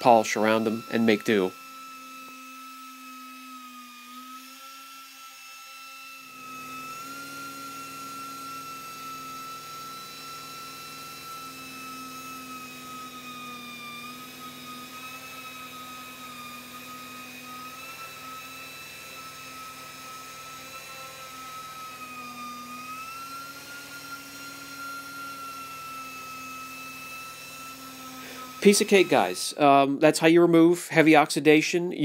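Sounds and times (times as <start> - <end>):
pneumatic polisher whining: 0.0 - 29.9.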